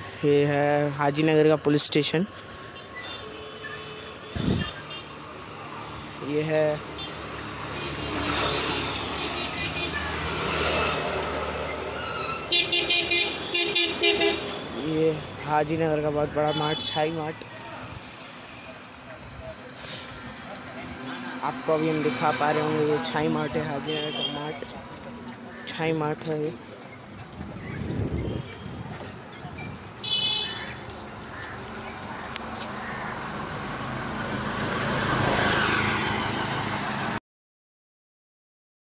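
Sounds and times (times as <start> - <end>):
auto-rickshaw passing: 0.0 - 37.2
street traffic noise: 0.0 - 37.2
vehicle horn beeping rapidly: 7.0 - 10.1, 12.4 - 14.8, 16.4 - 17.2, 23.8 - 24.5, 30.0 - 30.7.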